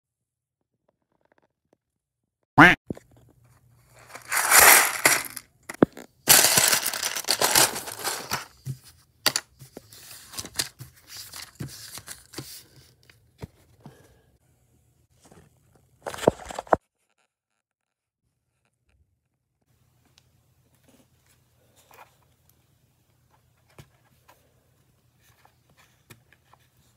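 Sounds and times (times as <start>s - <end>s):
paper bag tearing and rustling: 4.0s - 5.4s, 6.3s - 8.5s
plastic bricks clicking and rattling: 4.0s - 8.5s.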